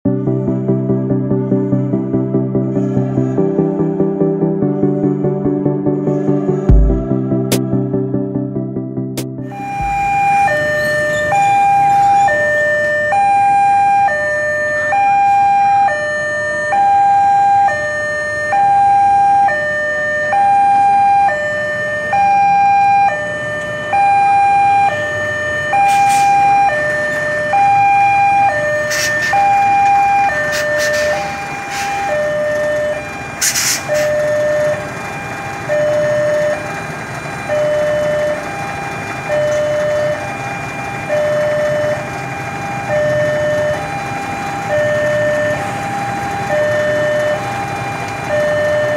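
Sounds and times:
road traffic: 0.0 - 48.9
level crossing two-tone alarm: 9.4 - 48.9.

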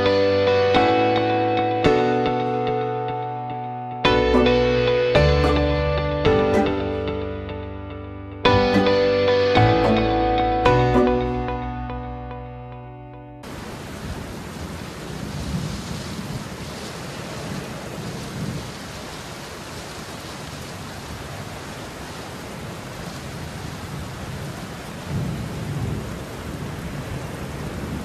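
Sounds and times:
heavy rain: 13.4 - 28.0
thunder rumbling: 13.5 - 21.3, 22.1 - 28.0.

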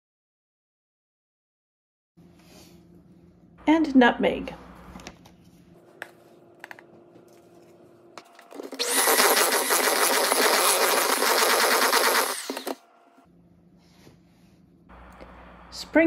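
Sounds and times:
electric hand mixer whining: 8.5 - 12.8.

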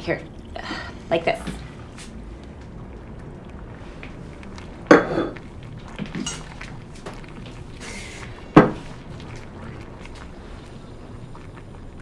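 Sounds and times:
glassware clinking: 6.2 - 6.5.

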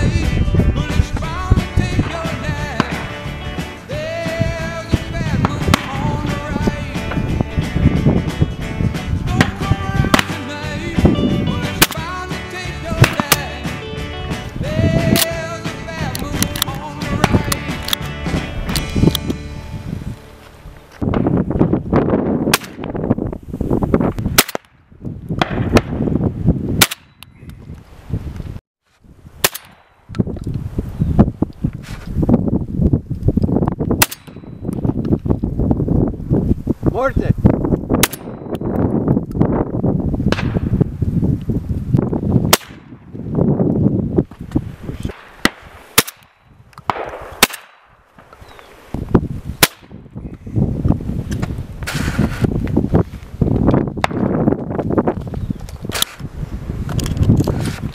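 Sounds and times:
shotgun shots: 2.7 - 3.2, 5.4 - 6.1, 9.4 - 10.5, 11.7 - 12.1, 13.0 - 13.6, 22.5 - 22.9, 24.4 - 24.8, 26.8 - 27.2, 29.4 - 30.0, 34.0 - 34.5, 38.0 - 38.4, 42.5 - 43.0, 45.1 - 48.3, 49.6 - 50.0.

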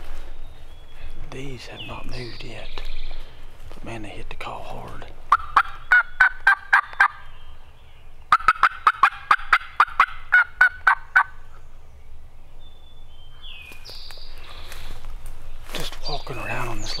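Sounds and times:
turkey call yelps: 5.3 - 7.2, 8.3 - 11.4.

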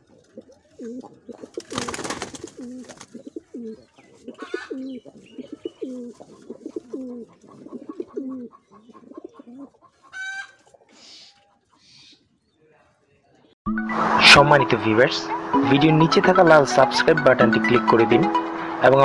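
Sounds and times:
wings flapping: 0.0 - 8.3
pigeons cooing: 0.0 - 12.4
pigeon high call: 2.6 - 12.3.

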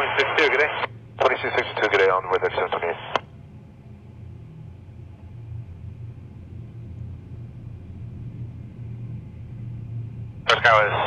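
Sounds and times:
distant jet airliner rumble: 0.0 - 11.0.

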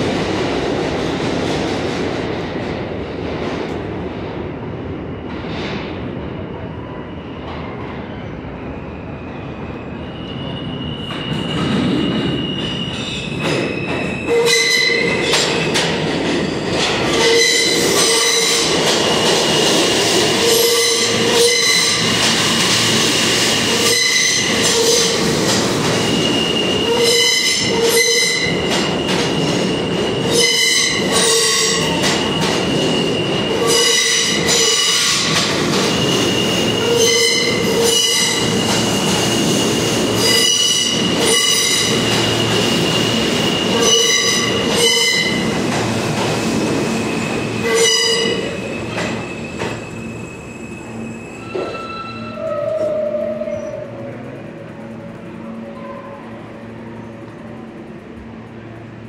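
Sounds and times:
high wheel squeal: 9.2 - 15.2, 20.4 - 22.2, 25.8 - 42.9, 46.9 - 53.9.

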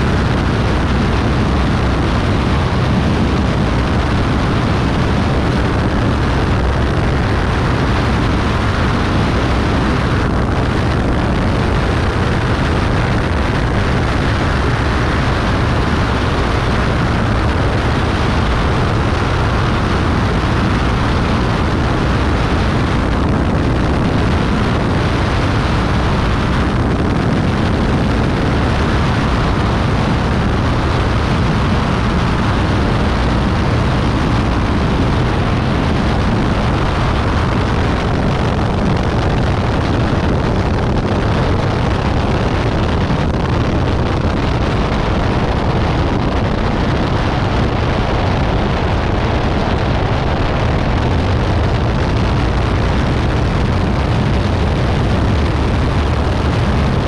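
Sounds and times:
propeller plane engine: 0.0 - 57.0
wind rush: 0.0 - 57.0.

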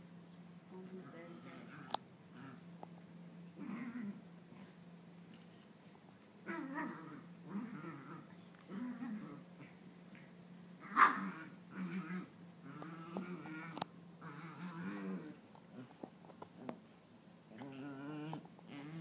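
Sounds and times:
faint low hum: 0.0 - 19.0
dog growling: 1.6 - 2.8, 3.6 - 4.8, 6.4 - 9.8, 10.8 - 19.0.

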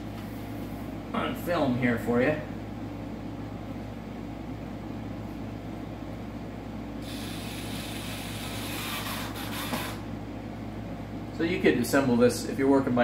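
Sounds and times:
low room hum: 0.0 - 13.0
hiss: 7.0 - 10.1.

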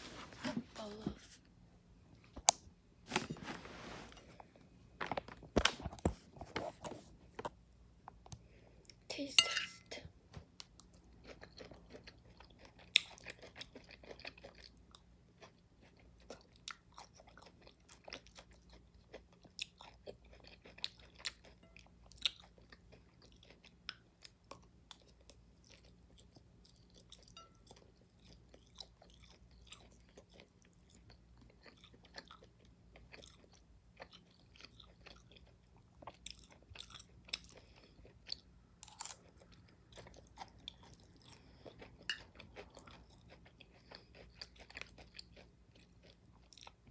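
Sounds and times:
person chewing food: 10.4 - 46.9.

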